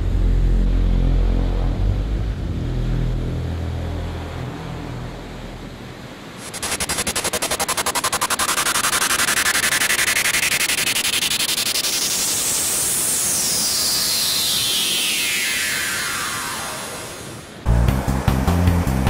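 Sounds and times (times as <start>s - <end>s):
fluttering rattle with rising tone: 6.4s - 17.6s.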